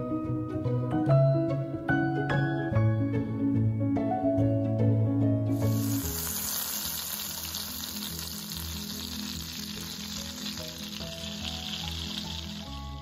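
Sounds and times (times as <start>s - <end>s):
quiet background music: 0.0s - 13.0s
butter sizzling in pan: 5.5s - 13.0s.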